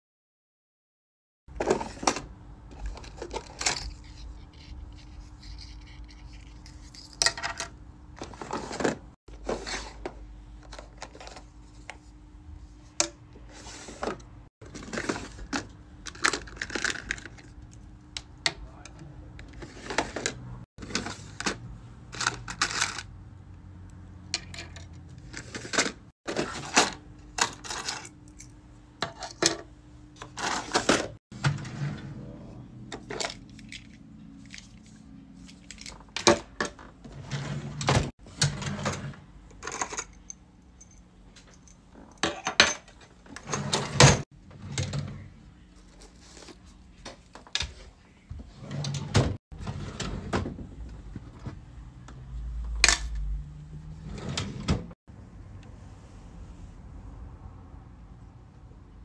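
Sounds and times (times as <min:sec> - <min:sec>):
small items clattering in plastic bins: 0:01.5 - 0:04.0, 0:07.0 - 0:11.5, 0:13.5 - 0:17.6, 0:25.2 - 0:28.2, 0:29.0 - 0:31.8.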